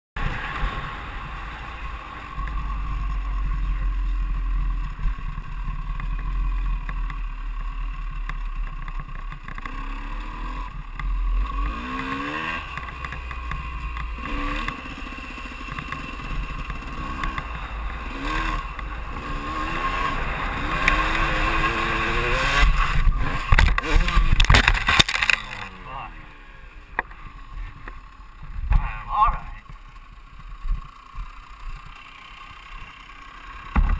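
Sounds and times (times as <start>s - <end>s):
dirt bike engine revving: 9.5s - 28.4s.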